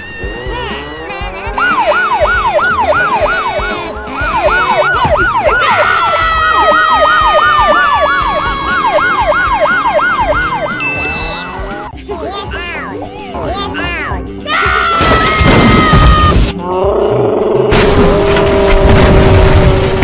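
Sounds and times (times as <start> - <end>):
police siren fast yelp: 1.6 - 10.8
siren tone sliding down: 1.8 - 3.6, 4.4 - 11.9.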